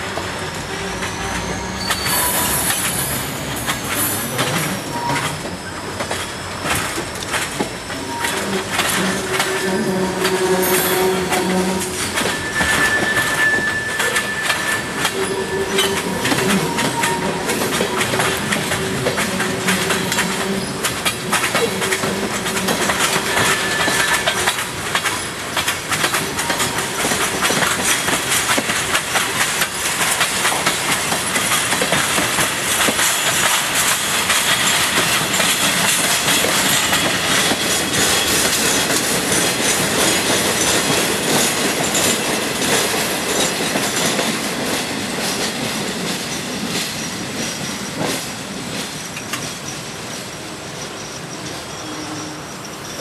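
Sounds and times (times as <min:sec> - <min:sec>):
freight train wheels rushing: 0:00.0 - 0:53.0
wheels clicking over rail joints: 0:01.8 - 0:50.4.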